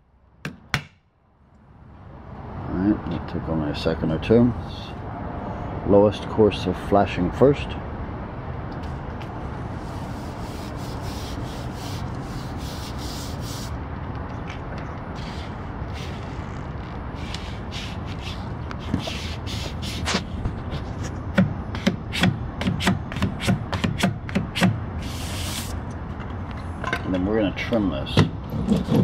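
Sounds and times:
tape rubbed by hand: 0:08.8 - 0:13.8, 0:15.2 - 0:21.2, 0:25.0 - 0:25.8.

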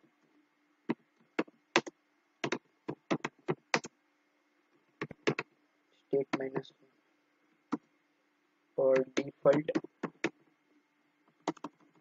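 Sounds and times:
faint steady hum: 0:00.0 - 0:12.0
keyboard keys clicking: 0:01.4 - 0:03.9, 0:05.0 - 0:05.5, 0:11.4 - 0:12.0.

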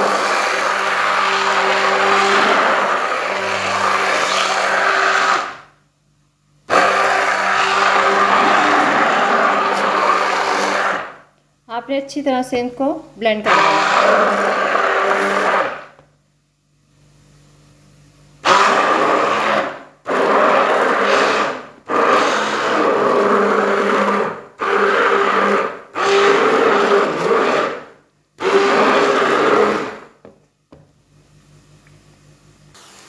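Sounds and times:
immersion blender pureeing: 0:00.0 - 0:05.8, 0:06.7 - 0:11.3, 0:13.4 - 0:16.1, 0:18.4 - 0:30.2.

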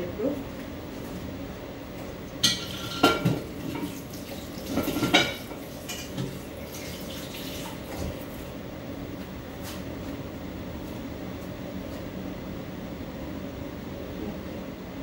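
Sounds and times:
steady low hum: 0:00.0 - 0:15.0
dishes and utensils clattering: 0:02.4 - 0:08.0.

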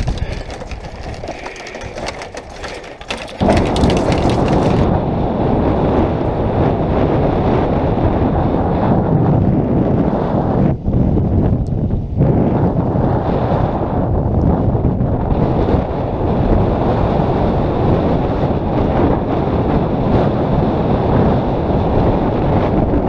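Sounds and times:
bicycle rattling on gravel: 0:00.0 - 0:04.9
wind buffeting microphone: 0:00.0 - 0:23.0.

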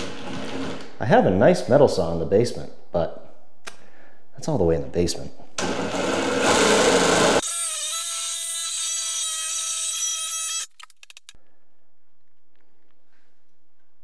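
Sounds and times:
reciprocating saw cutting metal: 0:06.3 - 0:11.4.

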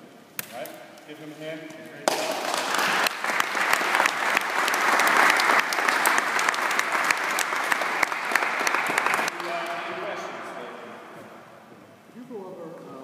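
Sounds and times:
audience applauding: 0:02.1 - 0:10.8.

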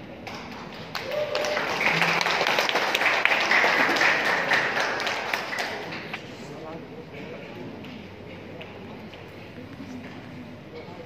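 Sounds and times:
audience applauding: 0:00.2 - 0:06.2.

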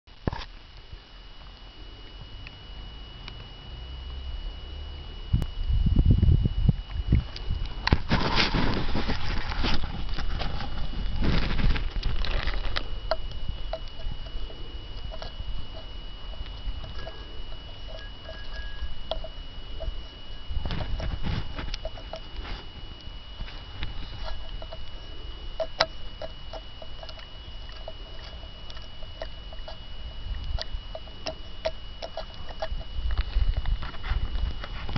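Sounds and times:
faint steady high tone: 0:00.2 - 0:34.9
handling rustling: 0:07.5 - 0:29.8.

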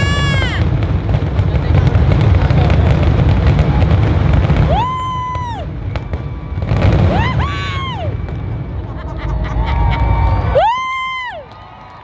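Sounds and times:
fireworks banging and crackling: 0:00.0 - 0:12.0
crowd whooping: 0:04.5 - 0:12.0.

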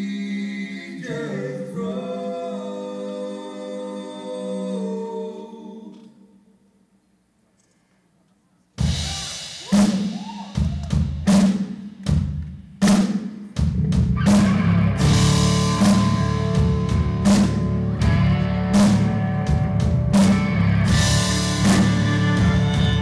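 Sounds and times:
drum kit hits with cymbal crashes: 0:08.8 - 0:23.0
country rock band playing: 0:14.0 - 0:23.0.

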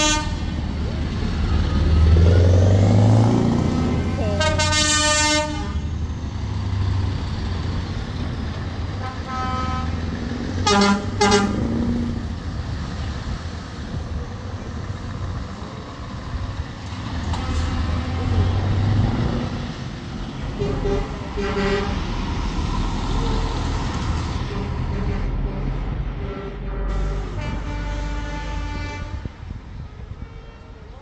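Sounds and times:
truck horn blasts: 0:00.0 - 0:00.6, 0:04.3 - 0:05.8, 0:09.0 - 0:12.0, 0:20.5 - 0:22.0, 0:24.5 - 0:29.5
truck diesel engines running: 0:00.0 - 0:31.0.

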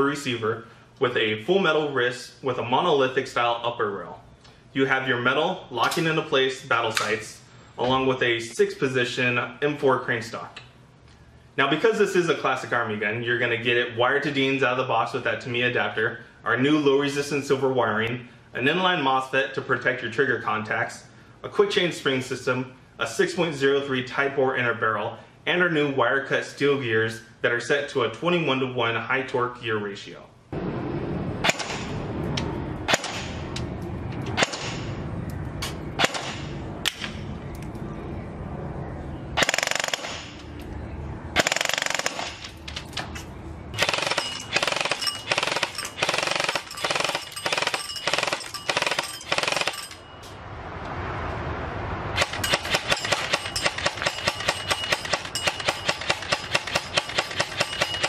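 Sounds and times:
airsoft rifle firing: 0:39.4 - 0:40.4, 0:41.4 - 0:42.4, 0:43.8 - 0:49.9, 0:52.2 - 0:58.0.

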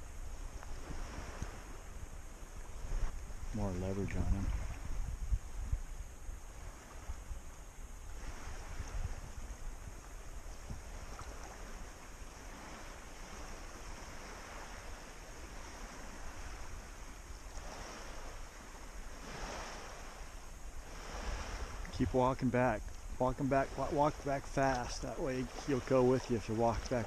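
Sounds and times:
water sloshing around waders: 0:00.0 - 0:05.7, 0:06.5 - 0:27.0
wind rumbling on microphone: 0:00.0 - 0:27.0.

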